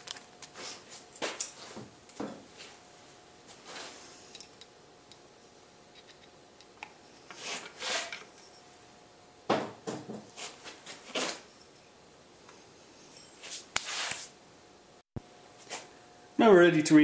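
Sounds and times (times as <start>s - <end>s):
metal parts scraping: 7.3s - 8.6s.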